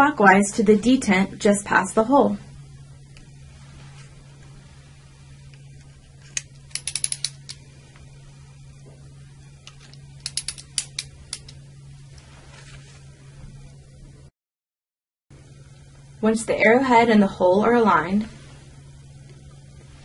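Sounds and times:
steady low hum: 0.0 - 14.3, 15.3 - 20.0
ratchet clicking: 6.3 - 7.6, 10.2 - 11.6.

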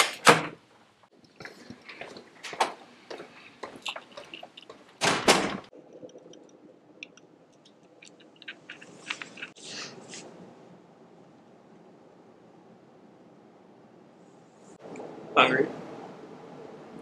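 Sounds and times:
door banging shut: 0.0 - 0.6, 5.0 - 5.7.

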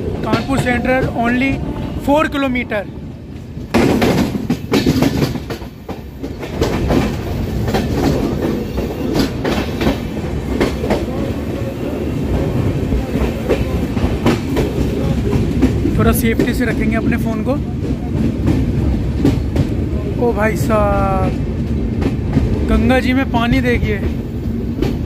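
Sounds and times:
wheels clacking over rail joints: 0.0 - 2.4, 3.3 - 20.2
train rumbling on track: 0.0 - 25.0.

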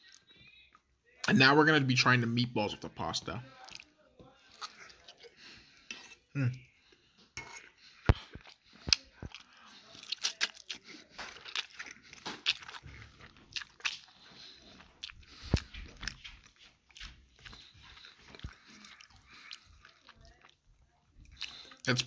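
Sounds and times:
person chewing food: 3.3 - 22.0
mouth clicks and smacks: 8.1 - 20.6.

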